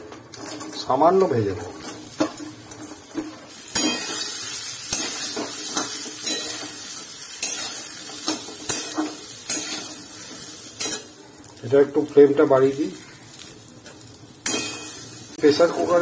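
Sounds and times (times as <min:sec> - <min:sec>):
seeds sizzling in hot oil: 0:00.3 - 0:16.0
metal spatula scraping a pan: 0:01.8 - 0:11.2, 0:14.4 - 0:16.0.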